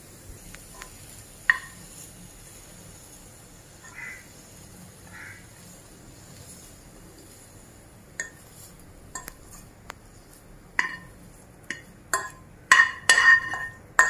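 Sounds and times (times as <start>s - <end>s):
utensil clinking against glass bowl: 11.7s - 14.0s.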